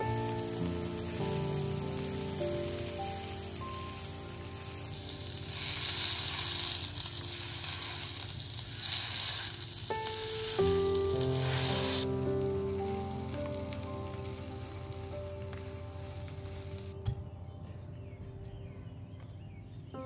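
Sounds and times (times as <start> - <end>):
samosas sizzling in oil: 0.0 - 17.0
soft background music: 0.0 - 20.0.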